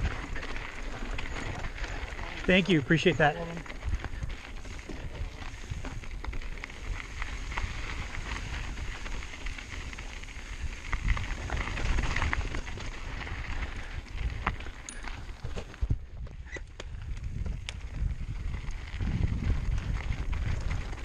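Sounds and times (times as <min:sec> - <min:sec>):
tyres crunching over gravel: 0:00.0 - 0:15.9
bike clicks and rattles: 0:00.0 - 0:21.0
wind buffeting microphone: 0:00.0 - 0:21.0.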